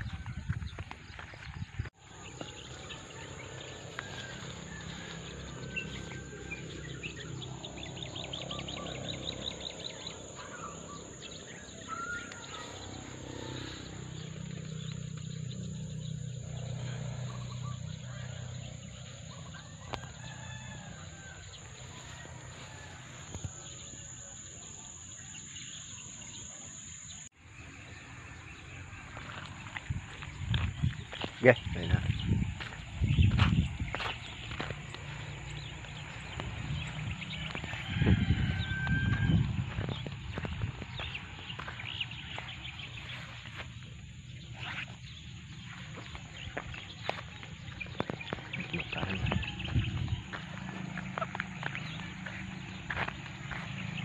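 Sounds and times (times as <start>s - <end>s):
birds calling: 0.0s - 54.0s
rooster crowing: 2.7s - 14.5s, 17.5s - 25.1s, 35.6s - 40.5s, 48.0s - 54.0s.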